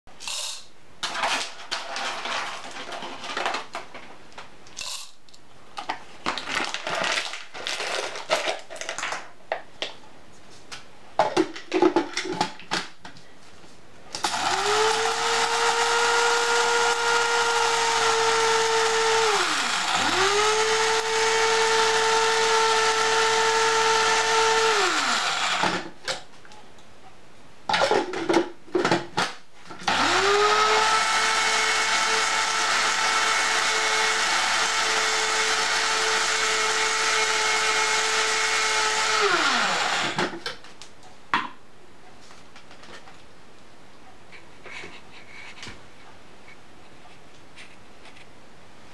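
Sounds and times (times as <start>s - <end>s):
coffee grinder motor whirring: 14.2s - 25.8s, 29.9s - 40.3s.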